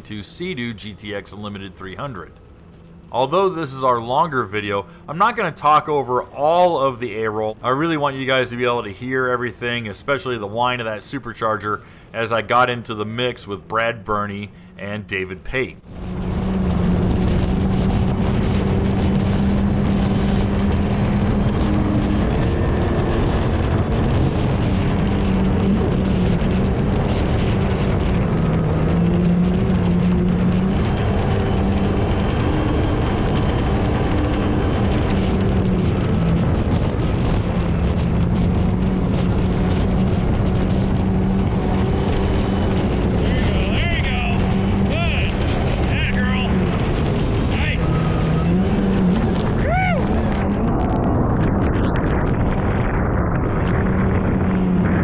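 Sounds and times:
faint supercharger whine: 0.0s - 55.0s
watercraft engine running hard: 15.8s - 55.0s
wind noise on microphone: 15.8s - 55.0s.

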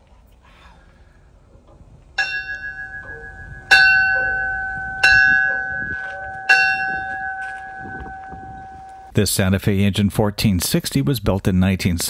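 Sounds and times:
locomotive bell clanging: 2.2s - 9.2s.

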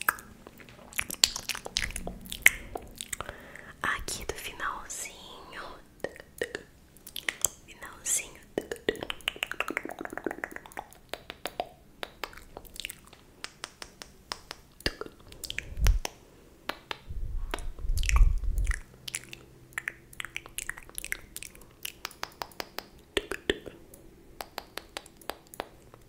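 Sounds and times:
wet mouth clicks and lip smacks: 0.0s - 3.4s, 6.0s - 26.0s
low muffled rumble: 15.5s - 16.0s, 17.0s - 19.0s.

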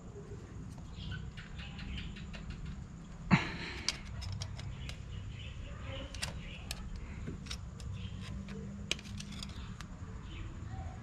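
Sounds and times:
hand tool clicking and scraping metal: 3.6s - 5.0s, 6.1s - 10.0s.

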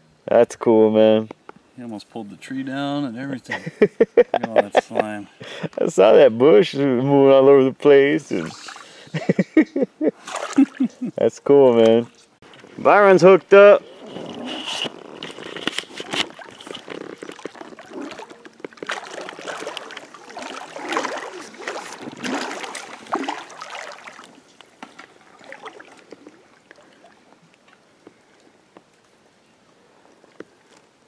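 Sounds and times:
water sloshing and splashing: 10.2s - 11.1s, 11.9s - 28.6s.

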